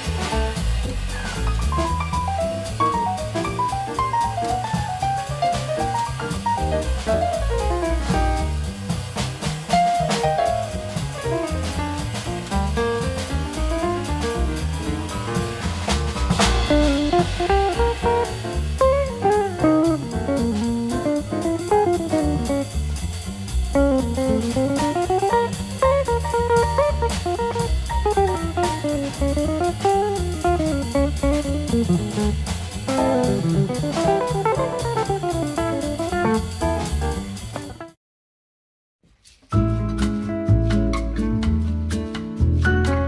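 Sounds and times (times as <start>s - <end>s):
bass: 0.0s - 38.0s, 39.1s - 43.0s
drum kit: 0.0s - 38.0s, 39.2s - 43.0s
plucked guitar melody: 16.6s - 22.7s, 23.8s - 36.8s, 39.6s - 43.0s.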